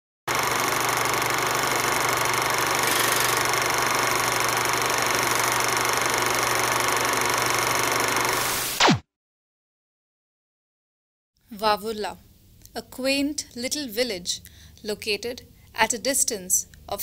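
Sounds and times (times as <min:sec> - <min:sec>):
mechanical whir of projector: 0:00.3 - 0:08.5
quick falling sweep: 0:08.4 - 0:09.0.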